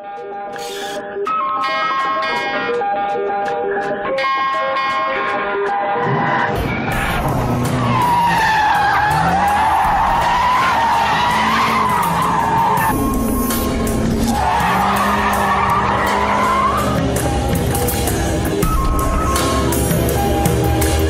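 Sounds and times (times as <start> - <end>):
tyres squealing: 6.5 - 18.4
car engine running: 6.6 - 21.0.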